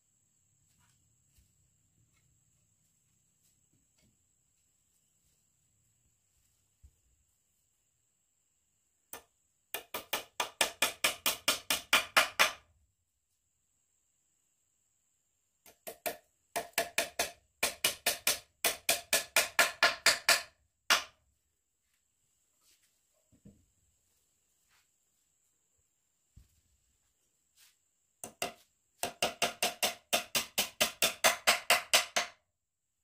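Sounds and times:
hammer striking wood: 9.1s - 12.7s, 15.7s - 21.2s, 28.2s - 32.4s.

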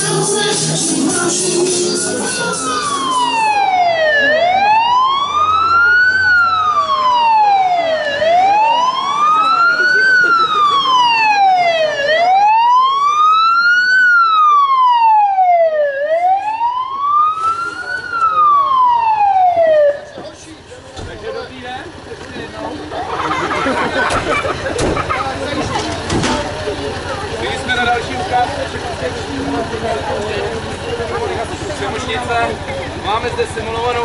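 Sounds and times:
fire engine siren wailing: 0.0s - 20.2s.

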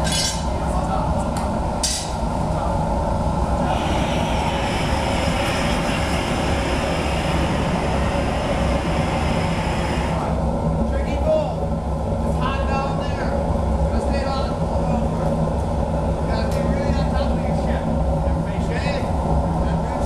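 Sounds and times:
steady low rumble: 0.0s - 20.0s
propane torch hissing: 1.6s - 10.6s.

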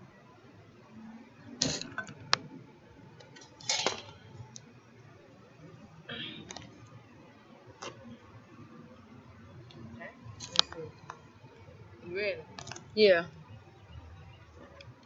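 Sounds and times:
tableware clicking and clinking: 1.6s - 2.2s, 3.3s - 4.3s.

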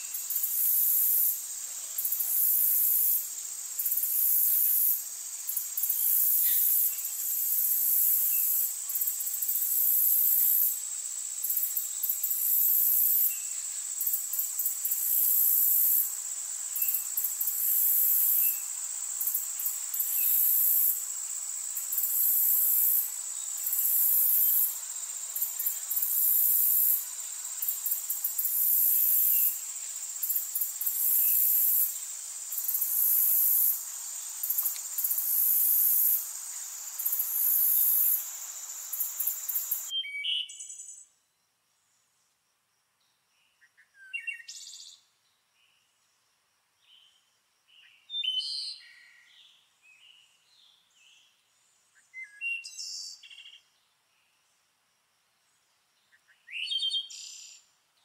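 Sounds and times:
high-pitched insect drone: 0.0s - 39.9s
insects buzzing in pulses: 0.0s - 39.9s.

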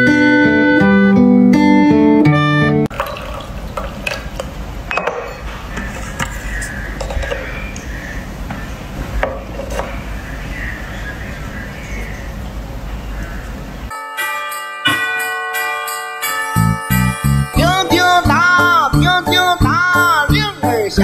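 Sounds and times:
tea pouring into cups: 2.9s - 4.8s
ceramic cups clinking: 2.9s - 7.8s.

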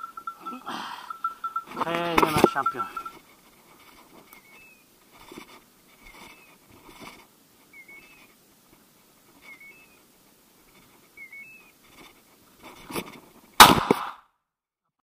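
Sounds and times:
brief rustle: 5.2s - 8.4s, 11.8s - 13.3s
shotgun shot: 13.6s - 14.2s.

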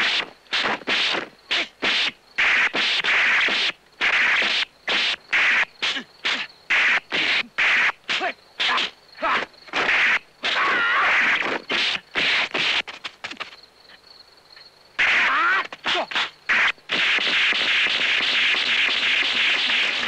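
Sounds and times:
slapping hits: 15.0s - 20.0s.

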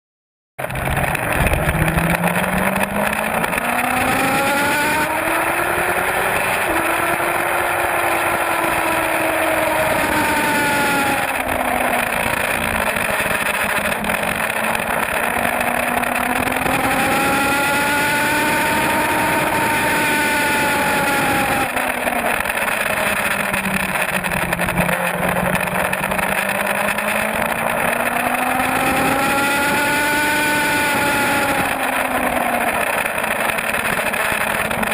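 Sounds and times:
motorcycle engine revving: 0.6s - 34.9s
wind rush: 0.7s - 13.9s.

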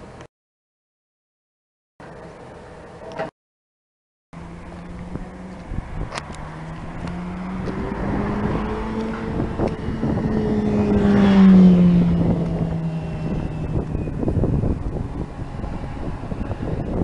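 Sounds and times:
vehicle passing by: 4.4s - 17.0s.

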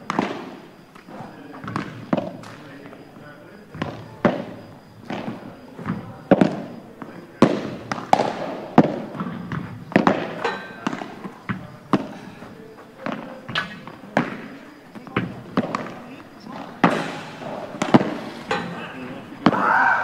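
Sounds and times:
padel ball hit and bouncing: 3.8s - 6.6s, 7.4s - 12.1s.

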